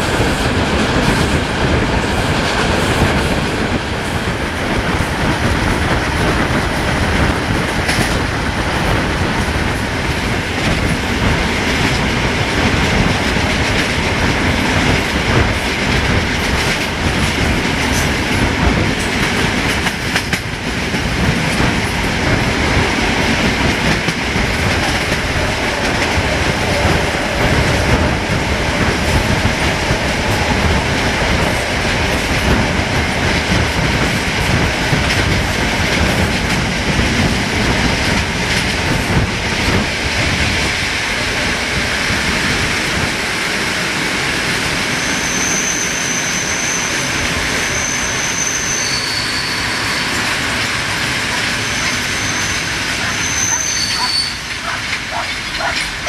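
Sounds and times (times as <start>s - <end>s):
train rumbling: 0.0s - 56.0s
wheels clattering over rail joints: 48.8s - 56.0s.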